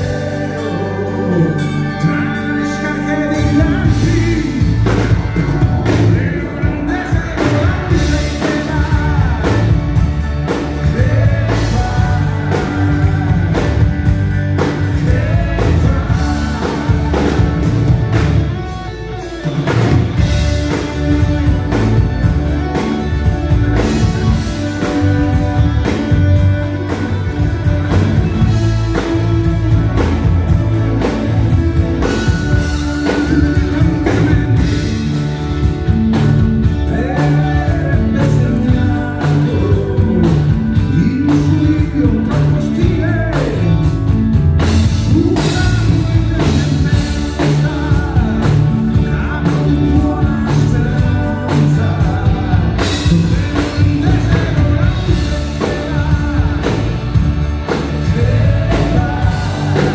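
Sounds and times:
live folk rock band: 0.0s - 59.9s.

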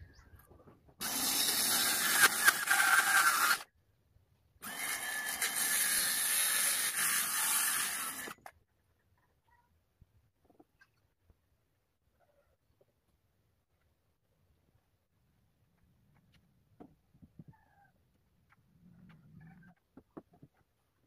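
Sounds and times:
circular saw cutting plywood: 1.0s - 3.7s, 4.6s - 8.5s.

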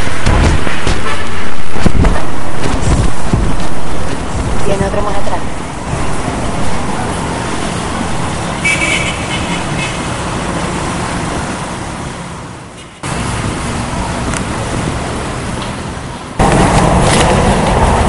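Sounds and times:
motorcycles and cars passing: 0.0s - 18.0s.

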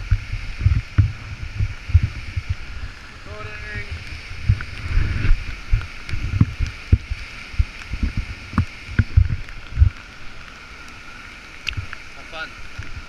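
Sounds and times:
low thumps near microphone: 0.0s - 10.0s
waterfall and whitewater rushing: 0.0s - 13.0s.

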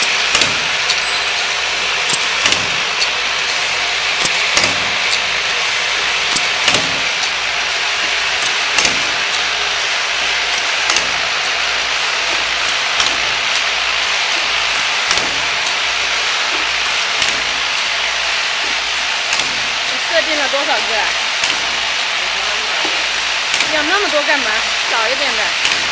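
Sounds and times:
machine whirring hiss: 0.0s - 25.9s
sharp clicks of caps: 10.5s - 11.6s, 12.3s - 13.7s, 16.5s - 17.9s, 21.1s - 22.2s, 22.8s - 23.8s.

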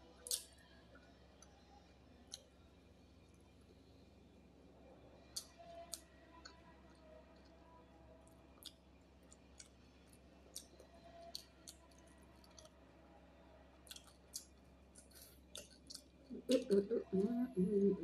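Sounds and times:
faint low hum: 0.0s - 18.0s
wet chewing clicks: 13.8s - 16.9s
lip smacks: 13.9s - 16.9s.

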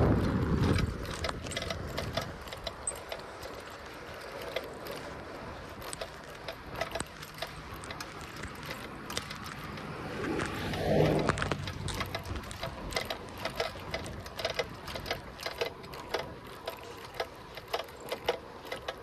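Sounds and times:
tyre and wind rush: 0.0s - 2.9s
bicycle chain clicking and rattling: 0.0s - 19.0s.

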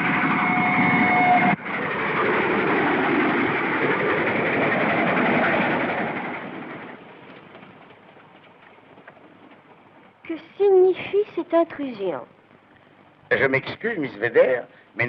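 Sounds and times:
train rushing rumble: 0.0s - 11.1s.

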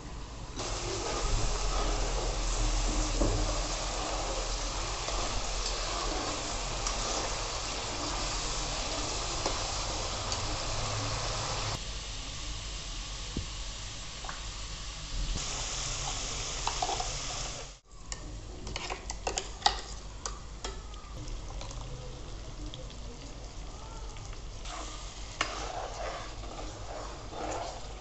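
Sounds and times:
paste sizzling in hot oil: 0.6s - 17.8s, 23.0s - 28.0s
metal spoon scraping pan: 18.6s - 19.8s, 24.6s - 28.0s.

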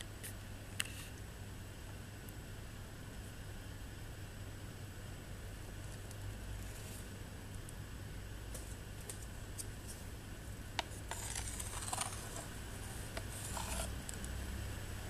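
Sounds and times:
claws scraping on plastic: 10.8s - 14.0s.

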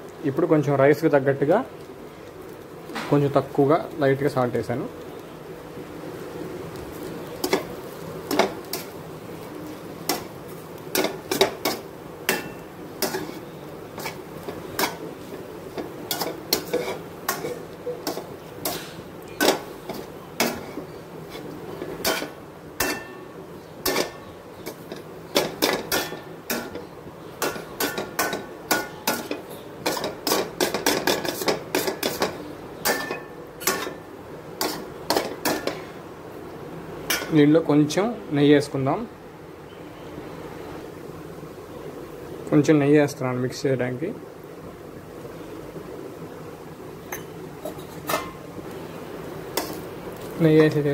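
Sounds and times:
steel ladle scraping a pot: 16.1s - 23.2s.

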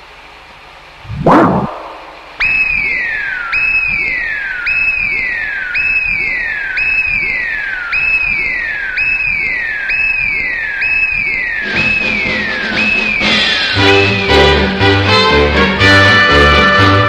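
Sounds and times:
falling sci-fi saucer tone: 1.0s - 13.9s.

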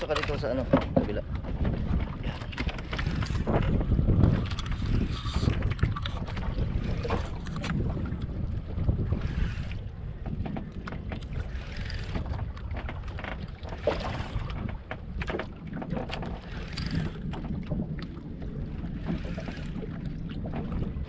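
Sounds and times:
boat engine rumble: 0.0s - 21.0s
water splashing against hull: 0.0s - 21.0s.

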